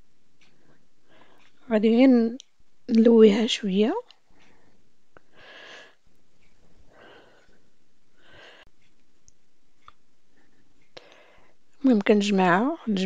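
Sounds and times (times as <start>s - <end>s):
faint clicks: 0.4s - 1.7s, 2.4s - 3.0s.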